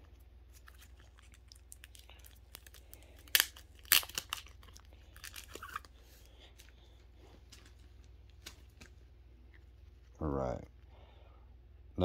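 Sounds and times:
packaging tearing: 0.5 - 6.0
packaging rustling: 0.5 - 9.0.

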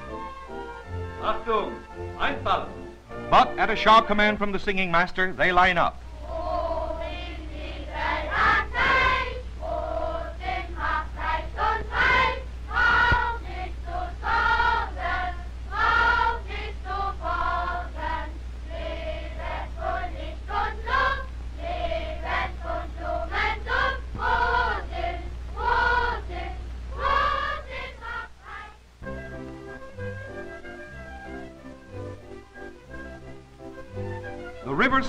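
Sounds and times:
steady low hum: 0.0 - 35.0
children's choir singing: 3.1 - 4.7, 6.2 - 29.2.

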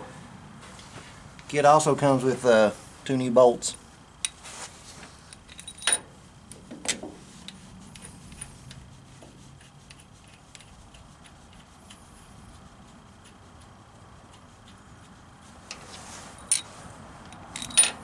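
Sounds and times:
steel bolts clinking: 5.3 - 6.1, 16.4 - 18.0.

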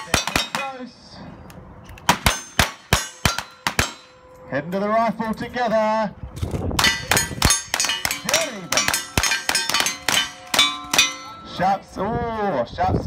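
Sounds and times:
steel target ringing clang: 0.0 - 0.8, 2.1 - 4.4, 6.8 - 11.7.

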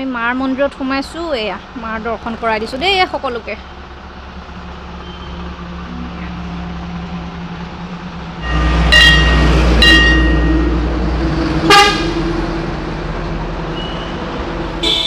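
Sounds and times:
vehicle engine rumbling: 0.0 - 15.0
car horn honks: 8.4 - 10.8, 11.7 - 12.2, 14.8 - 15.0.

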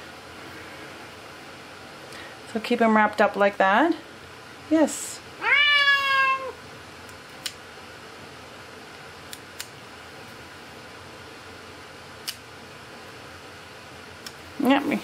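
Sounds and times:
cat meowing: 5.4 - 6.6
nail clippers clicking: 9.3 - 9.7, 12.2 - 12.4.

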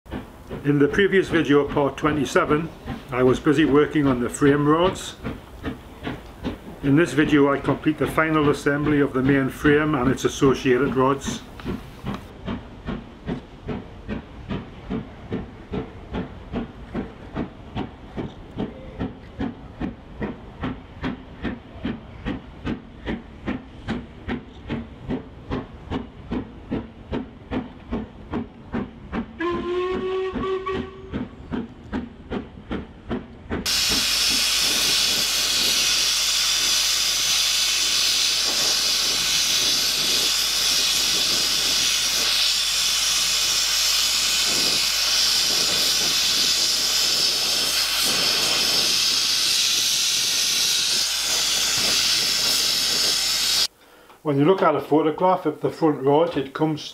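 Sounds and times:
steam locomotive puffing: 0.1 - 54.2
steam whistle blast: 29.4 - 31.2
gas torch flame hissing: 33.7 - 53.7.

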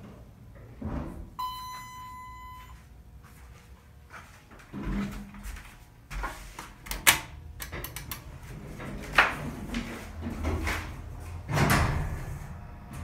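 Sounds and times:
elevator doors sliding and closing: 6.9 - 13.0.

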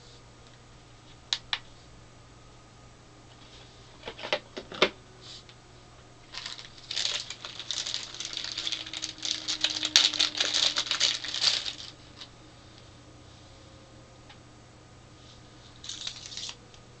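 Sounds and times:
plastic bag crinkling: 6.3 - 12.3, 15.8 - 16.6.

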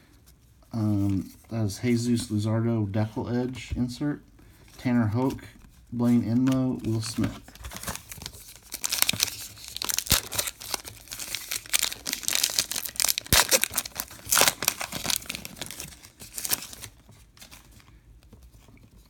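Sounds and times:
wrapper crinkling and tearing: 6.4 - 17.8.

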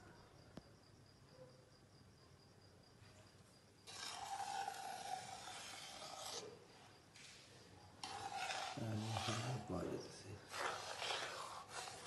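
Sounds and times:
metal ladle scraping a pot: 3.8 - 6.6, 8.0 - 12.0.

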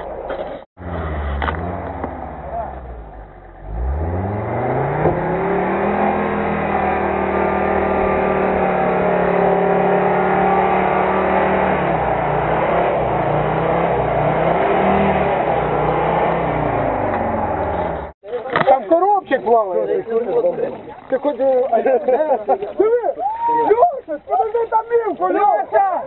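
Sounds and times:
off-road vehicle engine revving: 0.0 - 18.2.

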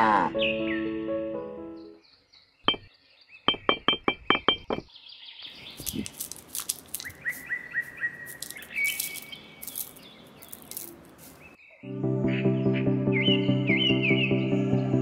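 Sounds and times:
birds chirping: 0.3 - 11.8
pebbles clattering from a sieve: 5.6 - 11.5.

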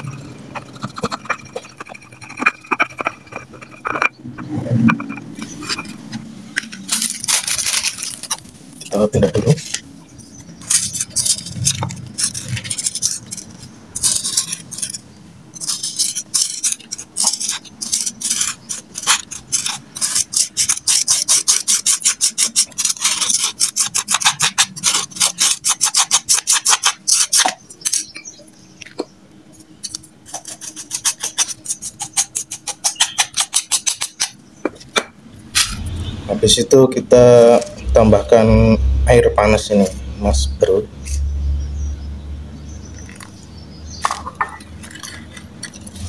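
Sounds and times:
biscuits being crushed: 6.6 - 8.6, 43.0 - 46.0.

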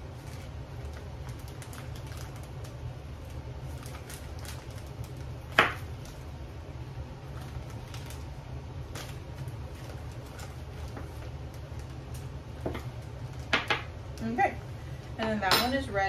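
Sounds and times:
plastic zip bag crinkling: 0.0 - 6.2, 7.2 - 13.5
steady low hum: 0.0 - 16.0.

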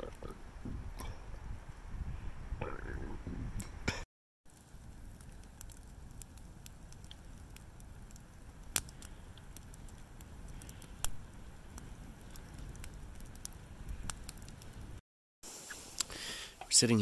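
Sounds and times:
campfire crackling: 0.0 - 3.8, 4.5 - 17.0
sharp snaps of fire: 4.5 - 16.7.

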